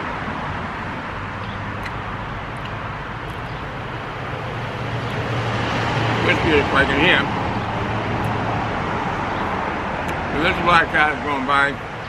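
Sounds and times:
approaching vehicle hum: 0.0s - 11.2s
road traffic passing: 0.0s - 12.0s.

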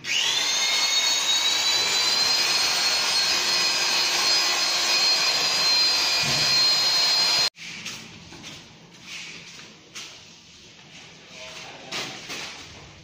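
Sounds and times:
power tool motor whining: 0.0s - 7.5s.

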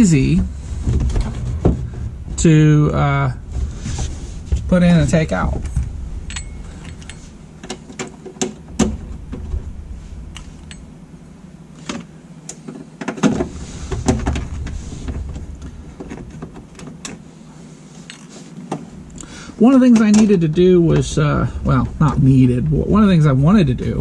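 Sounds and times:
low rumble: 0.0s - 12.4s, 13.5s - 17.3s, 18.9s - 24.0s.

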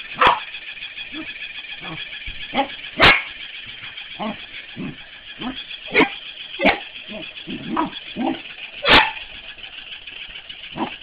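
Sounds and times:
dog yipping softly: 1.2s - 3.3s, 7.8s - 9.2s
dog barking sharply: 8.8s - 9.2s.

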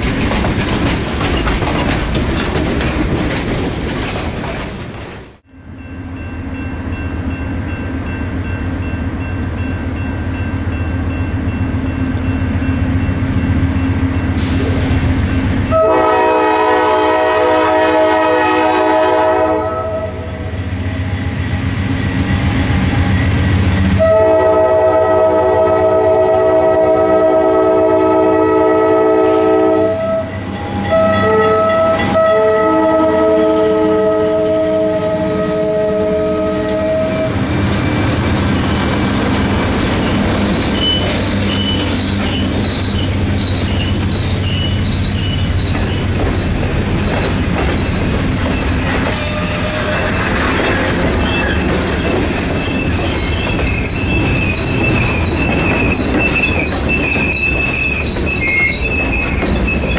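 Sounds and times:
train wheels clicking and squealing: 0.0s - 5.4s, 20.7s - 24.1s, 35.0s - 59.9s
locomotive air horn blasts: 15.7s - 20.5s, 24.0s - 37.4s, 49.2s - 50.2s.

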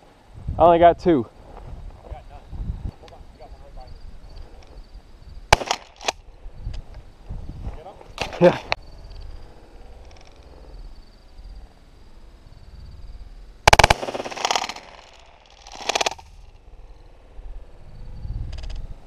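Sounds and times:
shotgun blasts: 5.5s - 6.2s, 13.7s - 16.3s.

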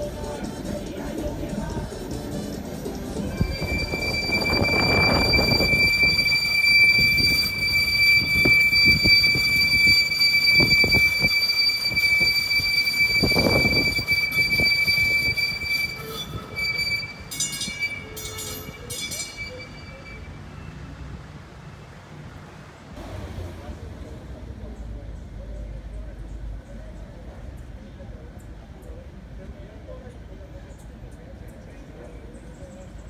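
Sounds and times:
tram wheels squealing on track: 2.6s - 21.1s.

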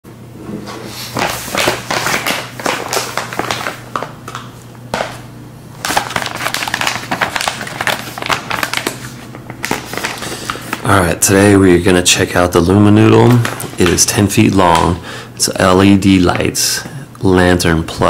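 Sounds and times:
packaging pouch crinkling: 0.9s - 4.6s, 5.8s - 10.9s.

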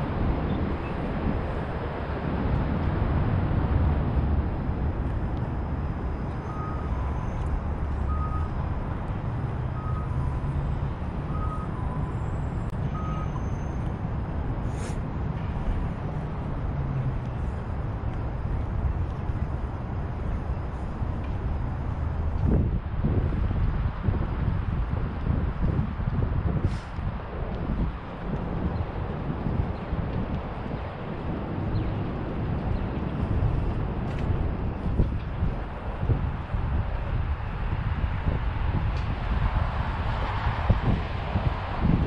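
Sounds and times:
street traffic rumble: 0.0s - 42.0s
reversing alarm beeps: 6.4s - 8.9s, 9.6s - 13.9s.

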